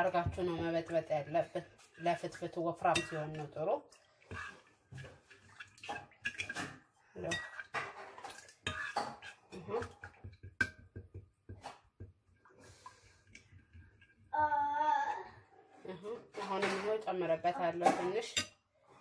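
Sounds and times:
spoon clinking and scraping bowl: 0.0 - 12.0, 17.8 - 18.6.

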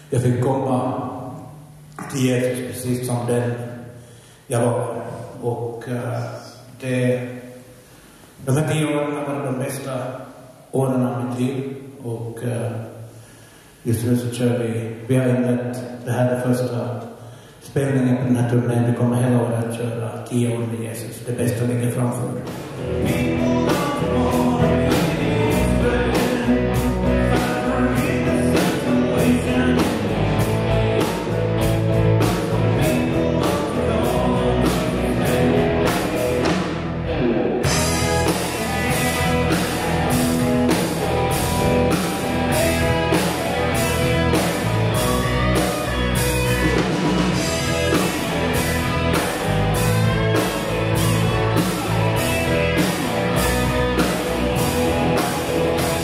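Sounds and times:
rock song with drums guitar and singing: 22.3 - 56.0.

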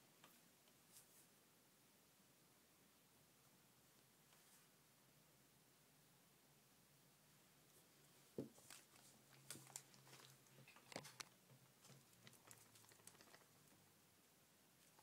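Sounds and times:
faint clicks taps and rustles: 8.4 - 13.9.

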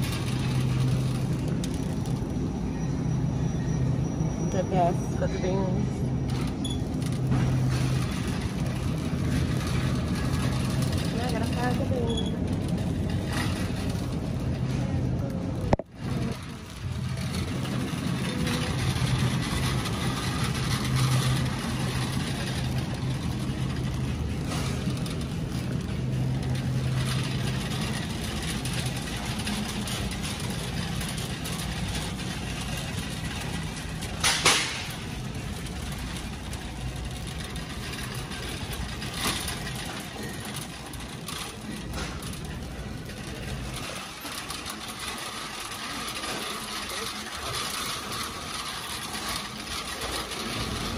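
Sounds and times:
cart wheels rumbling: 0.0 - 50.9
faint voices: 39.8 - 50.9.

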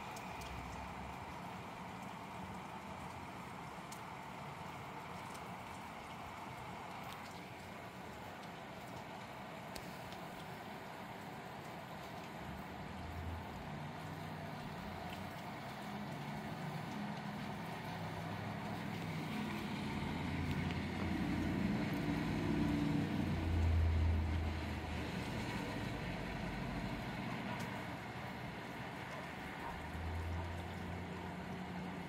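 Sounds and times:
rain hiss: 0.0 - 32.0
vehicle engine hum: 11.7 - 32.0.

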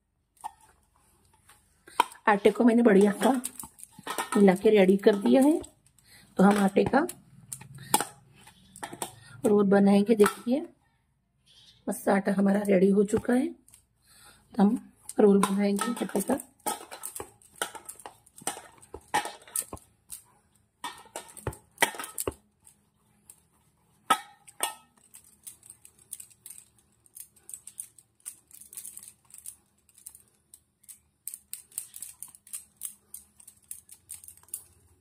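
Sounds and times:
bangles clinking against metal bowl: 1.9 - 10.6, 15.0 - 20.2, 24.1 - 30.2, 30.8 - 34.8.

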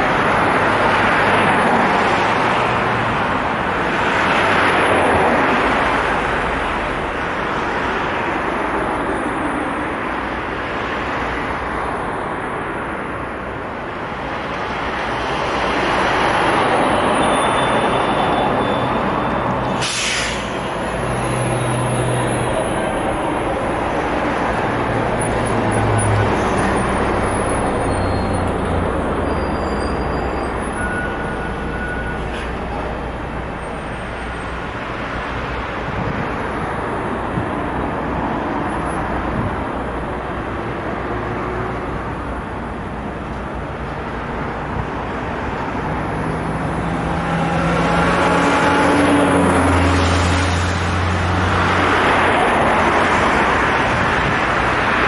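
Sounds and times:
road traffic passing: 0.0 - 55.0
tyres hissing: 19.7 - 21.1.

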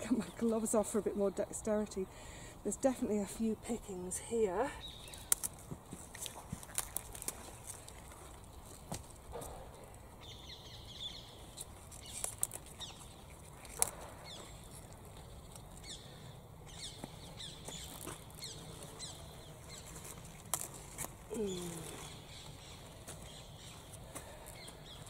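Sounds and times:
leaves rustling and snapping: 4.9 - 10.0, 11.4 - 16.0, 16.7 - 25.0.

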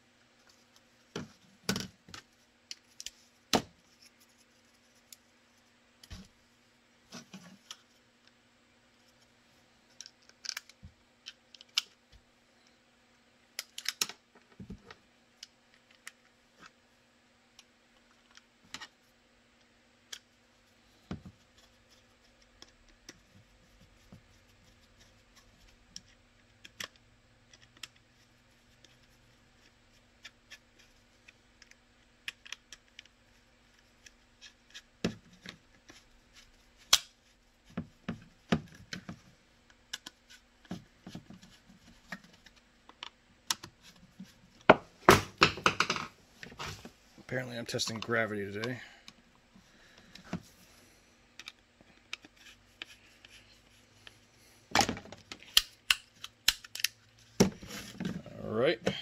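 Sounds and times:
faint steady hum: 0.0 - 59.0
plastic parts clicking and knocking: 9.9 - 12.0, 13.6 - 16.7, 26.0 - 28.0, 29.6 - 46.8, 54.7 - 58.2.

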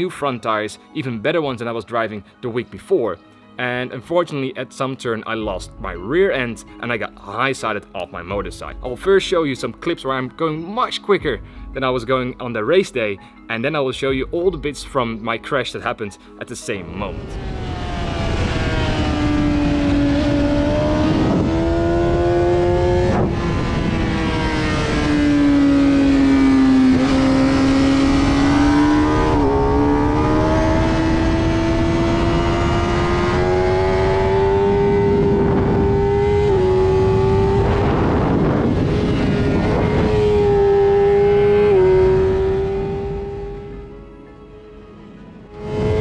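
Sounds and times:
motorcycle engine revving: 17.0 - 44.8, 45.5 - 46.0
wind rush: 17.1 - 25.4, 35.0 - 40.9, 45.2 - 46.0.

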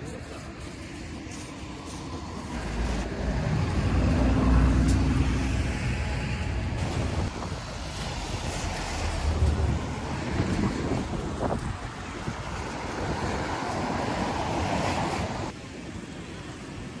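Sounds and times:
wind rumbling on microphone: 0.0 - 17.0
car passing: 1.0 - 15.6.

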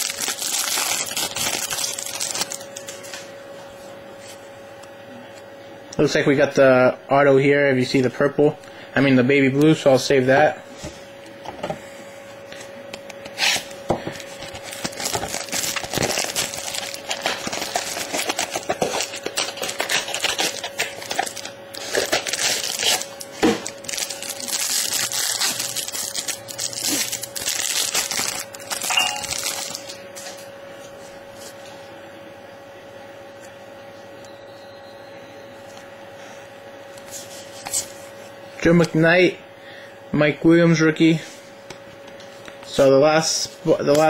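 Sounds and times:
wrapper crinkling and tearing: 0.0 - 3.0, 13.4 - 30.0
cards rustling and clicking: 14.2 - 30.0.

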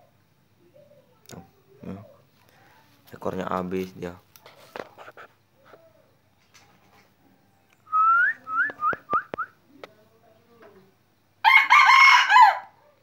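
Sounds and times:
rooster crowing: 11.4 - 12.8.

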